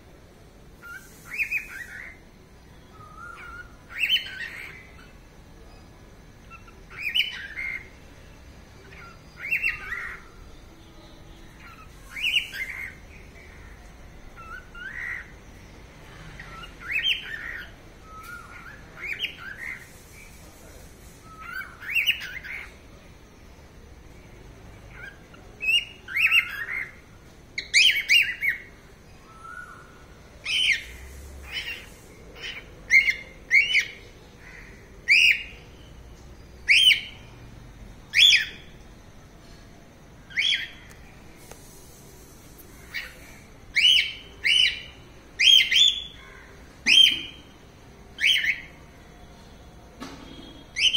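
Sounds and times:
cockatiel whistling and chirping: 43.8 - 46.2.

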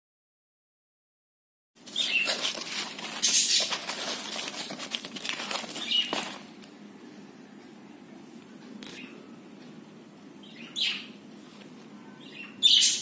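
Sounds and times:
faint rustling: 1.8 - 6.7.

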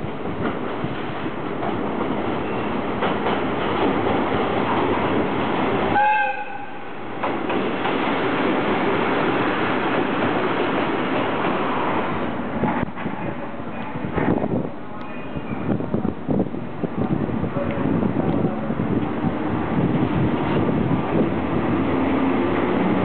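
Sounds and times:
train wheels rumbling on rail: 0.0 - 23.0
locomotive horn blast: 5.9 - 6.9.

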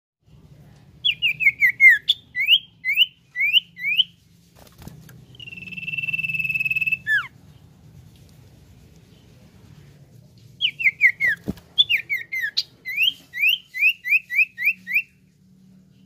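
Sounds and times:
bird singing whistled notes: 1.0 - 4.2, 5.3 - 7.3, 10.6 - 15.3.

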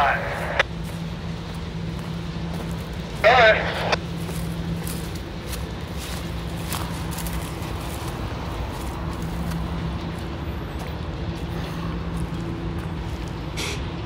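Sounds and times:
engine running: 0.0 - 14.0.

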